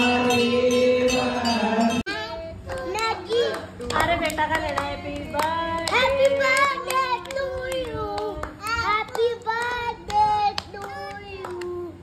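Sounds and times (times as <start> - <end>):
hands clapping: 2.7 - 11.7.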